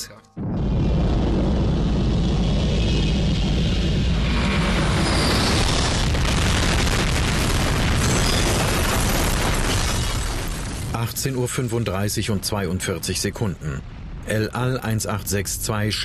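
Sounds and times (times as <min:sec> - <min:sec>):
deep rumbling roar: 0:00.4 - 0:07.3
heavy explosion: 0:00.4 - 0:11.1, 0:13.0 - 0:16.0.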